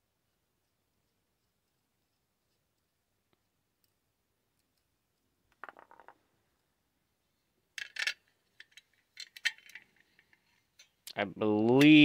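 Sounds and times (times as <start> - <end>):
metallic clicks of stand parts: 7.8 - 12.0.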